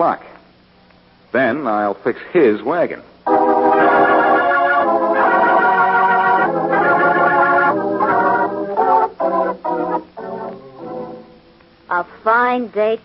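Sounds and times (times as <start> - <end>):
organ chords: 3.2 - 11.9.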